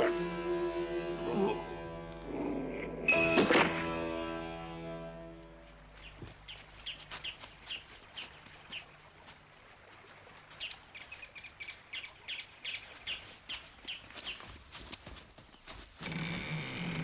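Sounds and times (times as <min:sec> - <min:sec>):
small birds chirping: 0:05.9 - 0:09.2, 0:10.5 - 0:14.6.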